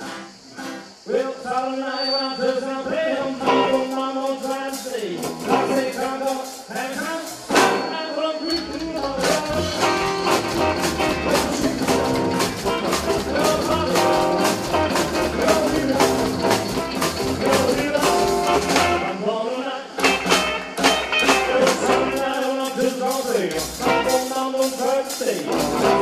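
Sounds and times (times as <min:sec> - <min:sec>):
rockabilly band playing: 0:00.0 - 0:01.0, 0:03.3 - 0:19.2, 0:19.9 - 0:26.0
upright double bass: 0:05.2 - 0:06.1, 0:08.8 - 0:19.1, 0:20.0 - 0:22.3, 0:23.5 - 0:24.3, 0:25.5 - 0:26.0.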